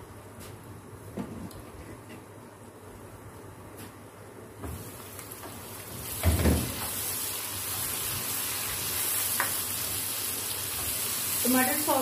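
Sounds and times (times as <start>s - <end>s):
vegetables sizzling in oil: 4.7s - 12.0s.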